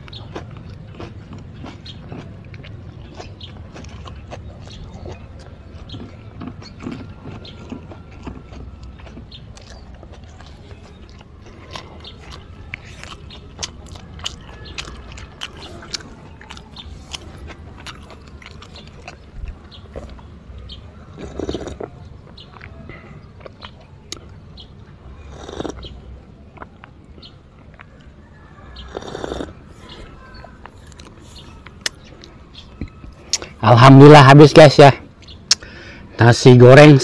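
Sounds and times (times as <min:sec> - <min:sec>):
man chewing food: 0:00.0 - 0:33.6
wet mouth clicks and smacks: 0:35.2 - 0:35.7.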